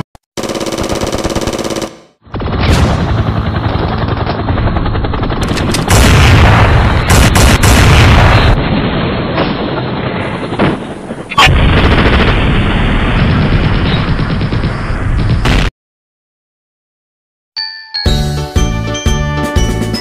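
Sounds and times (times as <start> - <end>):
continuous gunfire: 0.4 - 15.7
booms: 2.2 - 15.7.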